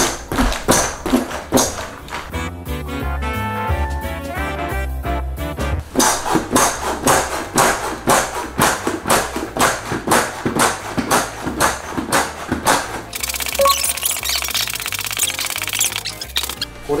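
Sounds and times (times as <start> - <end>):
foot pump strokes: 5.9 - 16.7.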